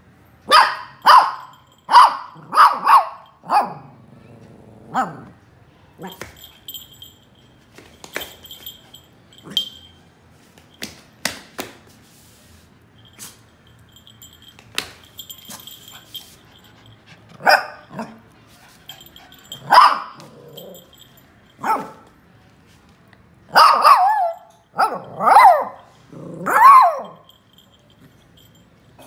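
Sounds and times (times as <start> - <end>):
puppy barking: 0.5 - 3.9, 17.4 - 18.2, 19.0 - 20.8, 21.6 - 22.1, 23.5 - 27.3.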